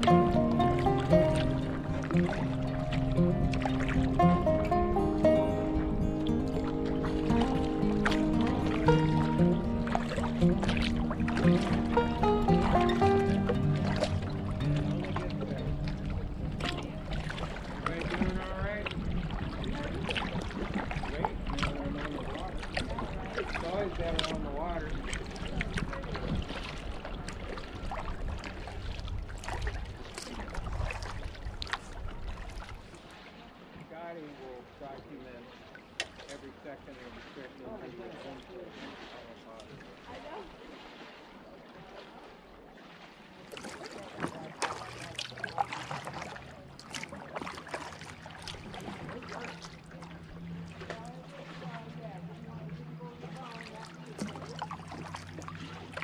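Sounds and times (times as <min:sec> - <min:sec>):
low steady hum: 0:00.0 - 0:20.5
paddle blades dipping in water: 0:00.0 - 0:56.0
water splashes and drips: 0:00.0 - 0:56.0
steady low rumble: 0:12.6 - 0:21.6.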